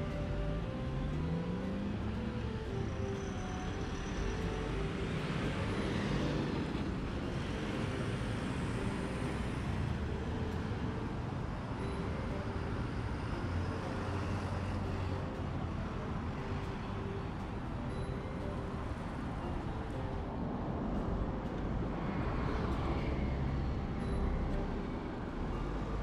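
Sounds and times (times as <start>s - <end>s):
vehicle passing by: 0.0s - 17.4s
cars passing on street: 0.0s - 26.0s.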